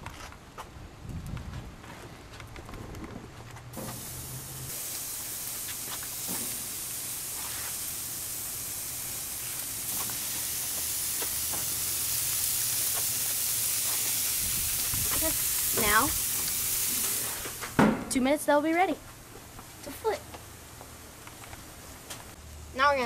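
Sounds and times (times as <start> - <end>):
steaks sizzling on grill: 3.8 - 17.8
fat popping and crackling: 9.4 - 18.2.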